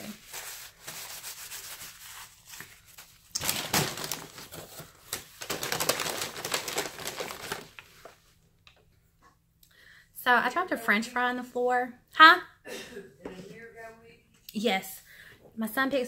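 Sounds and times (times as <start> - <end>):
paper packaging crinkling: 0.0 - 8.2.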